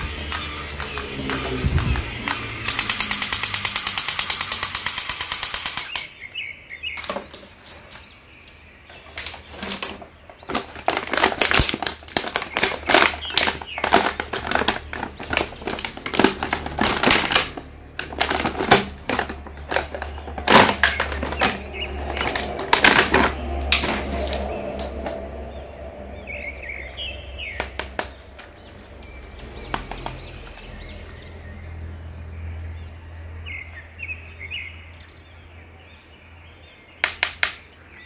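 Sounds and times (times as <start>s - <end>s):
toy rattling clicks: 0.0s - 6.1s
plastic bag crinkling: 8.9s - 25.2s.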